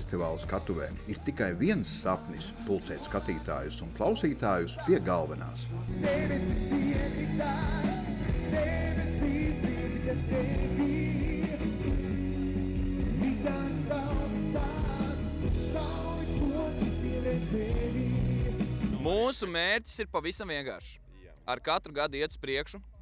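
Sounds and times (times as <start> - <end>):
live band with steady bass: 4.9 - 19.2
person singing: 5.8 - 12.2, 13.0 - 19.0.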